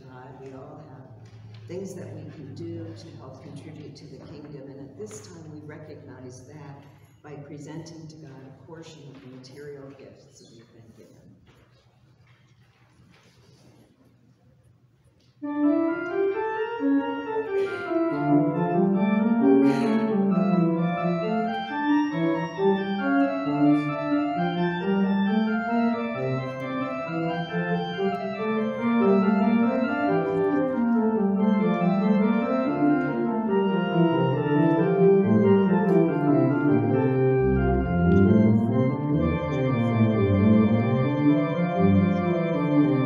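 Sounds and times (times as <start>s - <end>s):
slow organ music: 15.4s - 43.0s.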